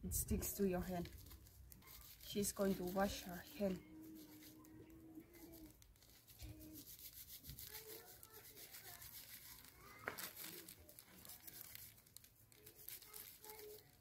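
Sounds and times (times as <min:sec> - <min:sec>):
dry rustling and crackling: 0:00.2 - 0:14.0.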